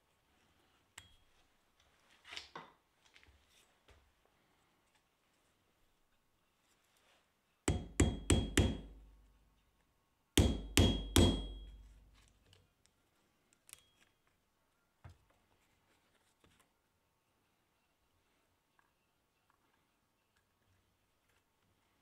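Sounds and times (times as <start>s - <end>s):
hammer striking metal: 7.7s - 9.0s, 10.4s - 11.9s.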